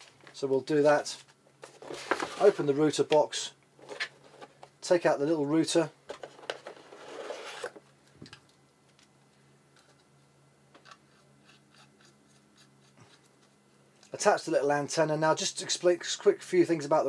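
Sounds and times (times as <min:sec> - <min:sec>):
cardboard and plastic scraping: 0:01.6 - 0:02.8, 0:06.1 - 0:07.8.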